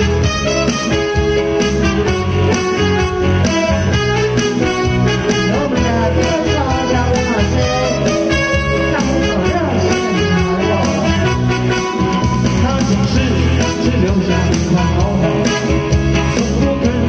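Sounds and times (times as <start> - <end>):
bass and drum beat: 0.0 - 17.0.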